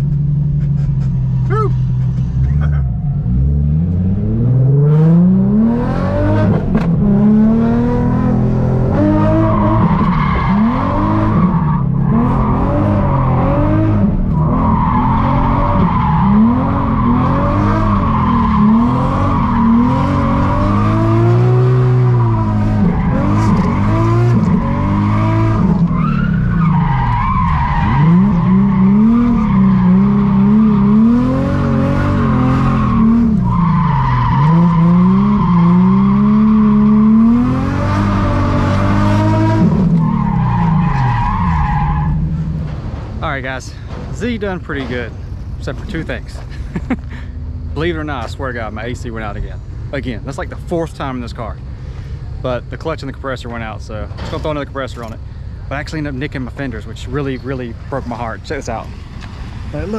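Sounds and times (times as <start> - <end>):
car engine revving: 0.0 - 46.4.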